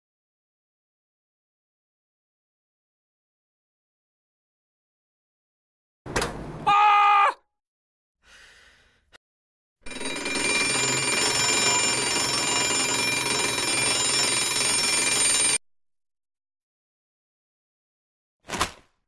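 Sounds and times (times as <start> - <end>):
alarm bell ringing: 9.8 - 15.6.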